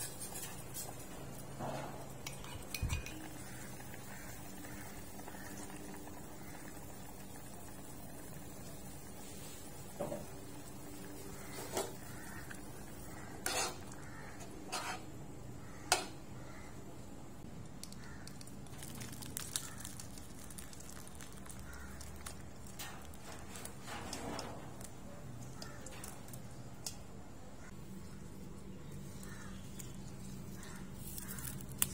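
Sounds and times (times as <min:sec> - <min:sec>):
metal pot and utensils clinking: 0:00.0 - 0:04.2
broth pouring into a bowl: 0:18.7 - 0:22.8.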